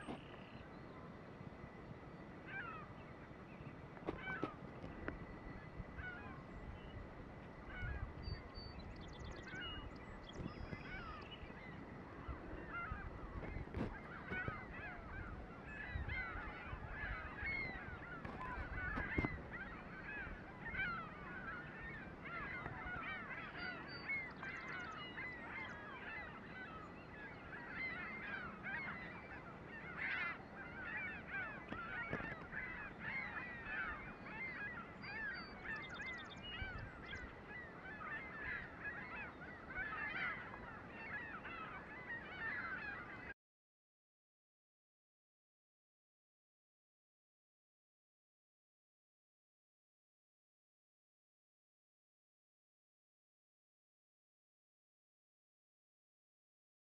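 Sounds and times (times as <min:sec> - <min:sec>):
flock of gulls calling: 0:00.0 - 0:43.4.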